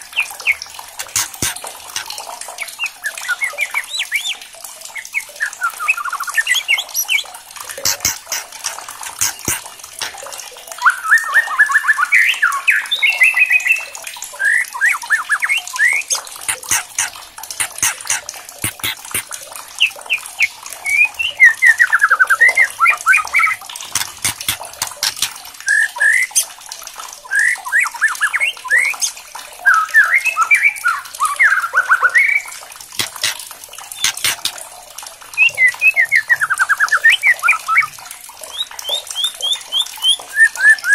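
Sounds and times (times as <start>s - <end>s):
bird ticking clicks: 1.0s - 2.2s, 7.7s - 10.3s, 16.4s - 19.4s, 23.2s - 25.4s, 33.0s - 34.6s.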